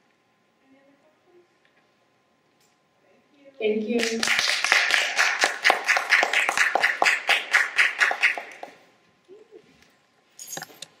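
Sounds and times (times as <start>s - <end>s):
audience applauding: 4.0s - 8.8s.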